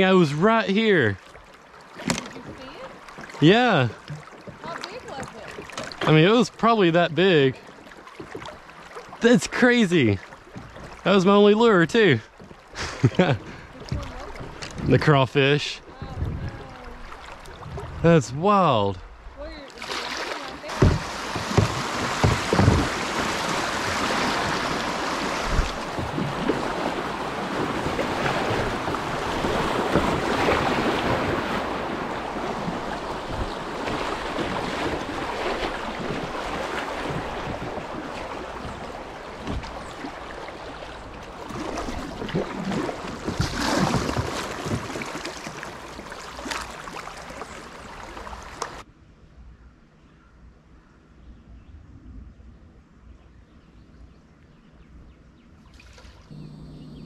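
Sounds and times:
river water rushing: 0.0 - 11.8, 13.6 - 48.8
water hits on kayak: 2.0 - 6.4, 19.8 - 48.8.

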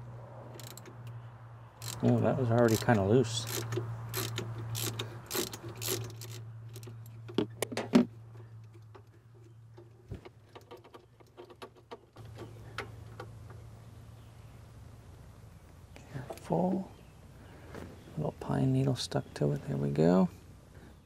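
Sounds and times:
ratchet wrench clicking: 0.6 - 1.2, 1.8 - 7.2.

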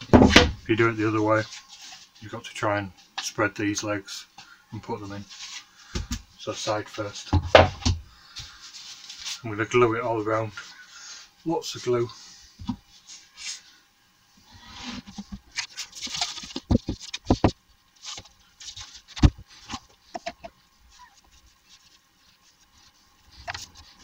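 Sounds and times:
rustles and scrapes: 0.8 - 3.4, 4.8 - 7.3, 8.3 - 13.8, 14.4 - 24.0
boards knocking: 7.4 - 8.0, 16.4 - 17.6.

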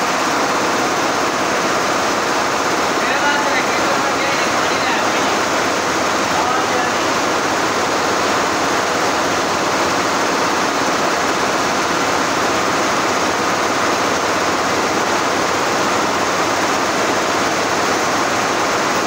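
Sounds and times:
embroidery machines running: 0.0 - 19.0.

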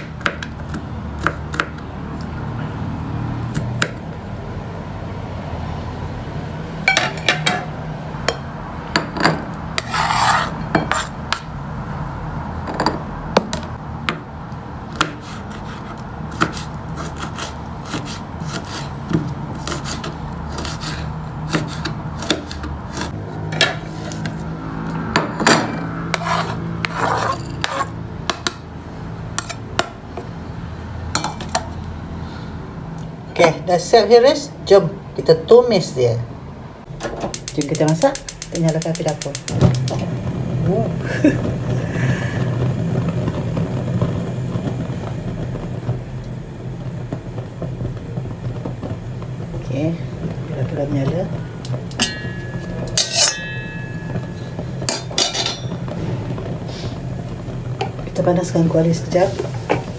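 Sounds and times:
steady low hum: 36.3 - 59.9.

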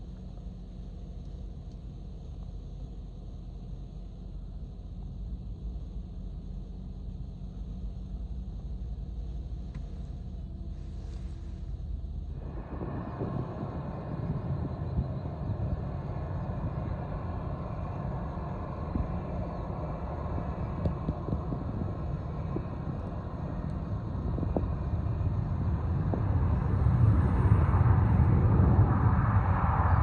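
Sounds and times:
jet engines rumbling: 10.8 - 30.0.

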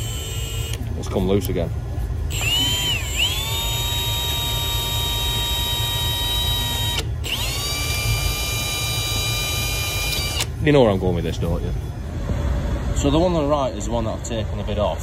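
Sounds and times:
cordless drill motor whine: 0.0 - 0.8, 2.3 - 10.6.

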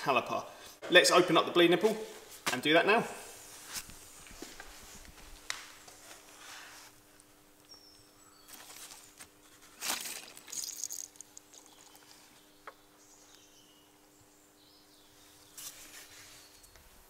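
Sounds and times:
scraping and rustling handling: 8.5 - 12.5.

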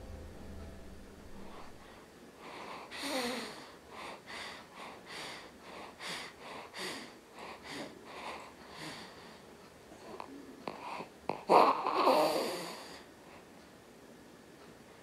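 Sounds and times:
baby snuffly breathing: 2.4 - 9.4.

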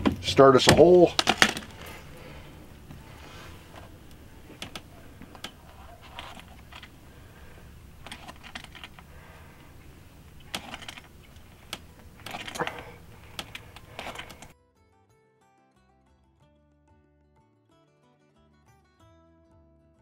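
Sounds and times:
hand tool clicking and creaking: 0.0 - 14.5
steady low rumble: 0.0 - 14.5
acoustic guitar music: 0.0 - 20.0.

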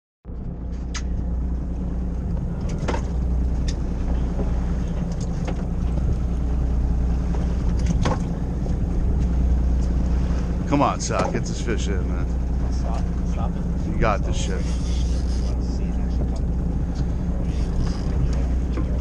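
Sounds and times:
boat engine droning: 0.3 - 19.0.

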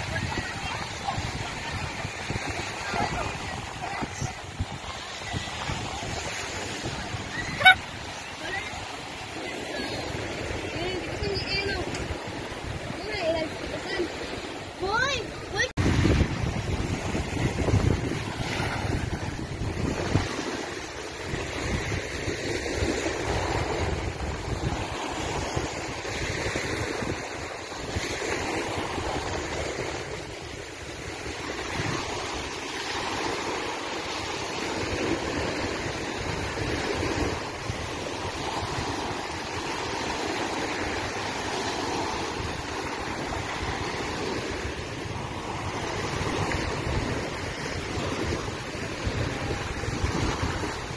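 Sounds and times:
wind rushing: 0.0 - 33.2
water rushing: 0.0 - 50.9
wind buffeting microphone: 0.0 - 50.9.

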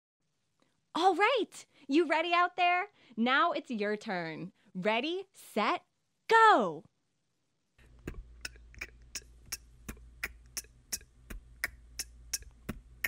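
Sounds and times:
beatbox rhythm: 7.8 - 13.0.

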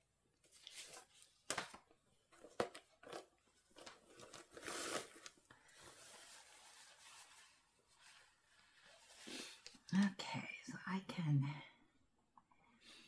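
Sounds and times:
crinkly bag rustle: 2.4 - 9.6.

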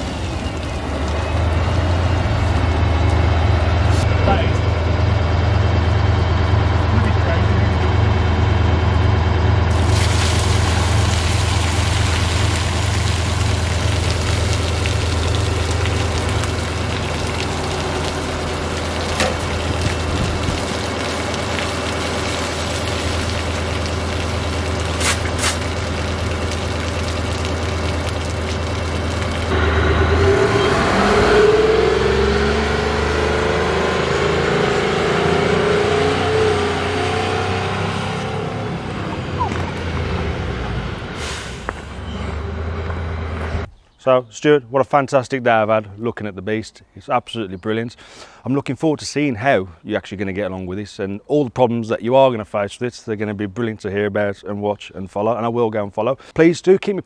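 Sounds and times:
diesel engine running: 0.0 - 43.7
water hissing from monitor: 24.6 - 26.8.

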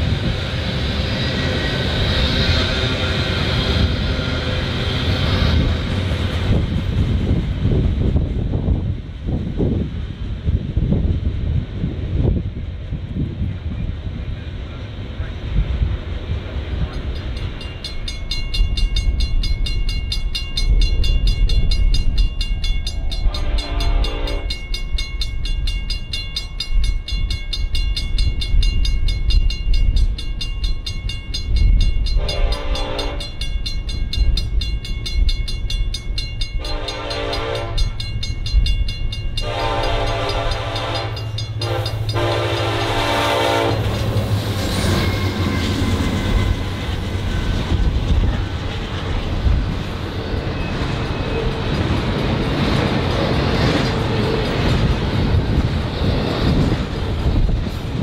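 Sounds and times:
crossing bell ringing rapidly: 16.9 - 47.7
locomotive horn blasts: 23.2 - 24.6, 32.2 - 33.4, 36.6 - 38.0, 39.4 - 44.0.

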